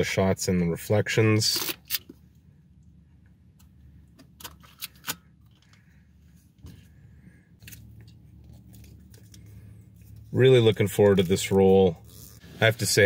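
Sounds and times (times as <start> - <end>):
low steady hum: 0.0 - 13.0
small clicks and rustles: 7.6 - 11.6.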